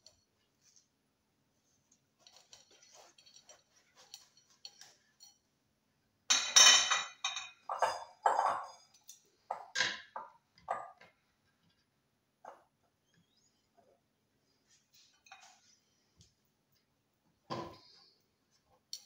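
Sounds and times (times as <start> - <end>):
dishes and utensils clattering: 2.2 - 5.4, 6.3 - 11.1, 14.9 - 15.7.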